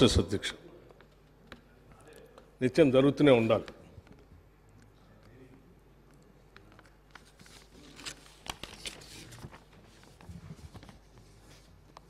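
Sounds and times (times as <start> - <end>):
paper rustling and crackling: 7.1 - 12.0.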